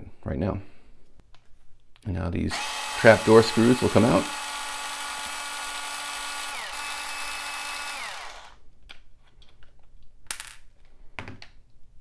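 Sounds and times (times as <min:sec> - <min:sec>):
electric screwdriver running: 0:02.5 - 0:08.6.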